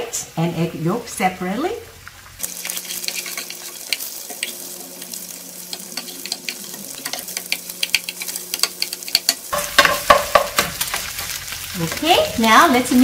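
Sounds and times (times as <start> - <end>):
food sizzling in a skillet: 0.0 - 13.0
metal ladle scraping a pan: 2.4 - 4.7, 5.7 - 12.1.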